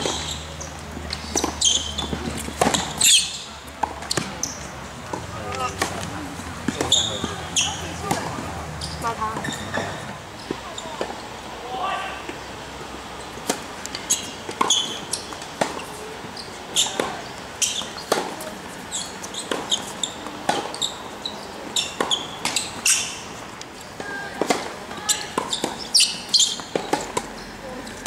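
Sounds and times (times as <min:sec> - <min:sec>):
rackets striking tennis ball: 0:00.0 - 0:11.2, 0:12.2 - 0:16.1, 0:16.7 - 0:28.0
ball bouncing on hard court: 0:01.1 - 0:11.1
short high squeaks: 0:01.4 - 0:02.1, 0:06.8 - 0:07.8, 0:08.8 - 0:11.0, 0:13.9 - 0:17.0, 0:18.9 - 0:23.2, 0:25.1 - 0:26.7.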